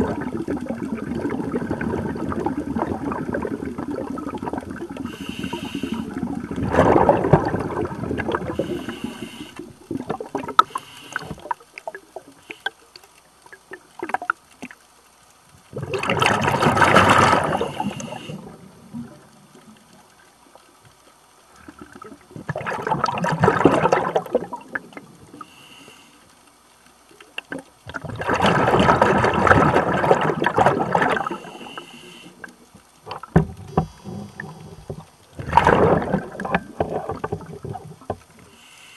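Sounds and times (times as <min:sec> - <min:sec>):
diver exhaling bubbles underwater: 0:00.0 - 0:12.0, 0:15.7 - 0:19.2, 0:21.6 - 0:25.4, 0:27.5 - 0:38.1.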